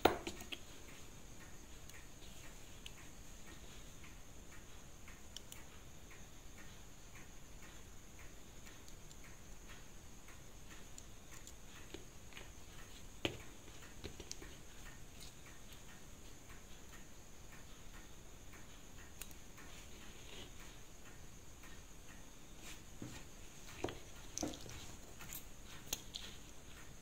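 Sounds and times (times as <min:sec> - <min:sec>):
clock ticking: 0:00.0 - 0:24.5
tweezers clicking on metal: 0:05.1 - 0:05.7, 0:19.0 - 0:19.6.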